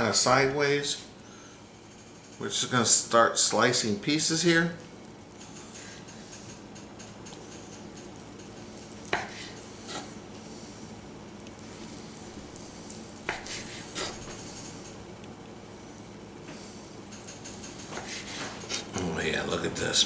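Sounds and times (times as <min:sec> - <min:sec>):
steady low hum: 0:00.0 - 0:20.0
knife slicing meat: 0:13.2 - 0:14.4.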